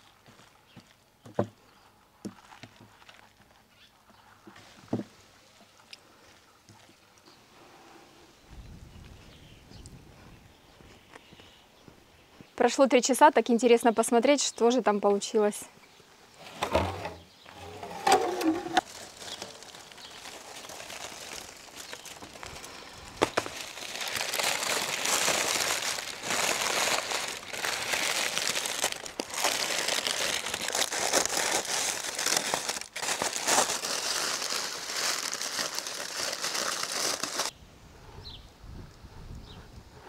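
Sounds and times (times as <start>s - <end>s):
heavy lid scraping across stone: 16.4s - 18.8s
parchment and foil crinkling: 17.6s - 37.5s.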